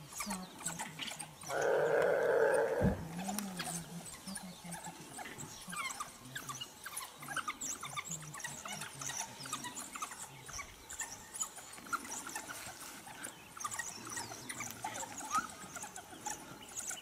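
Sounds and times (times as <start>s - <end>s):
wild dogs twittering chirps: 0.0s - 17.0s.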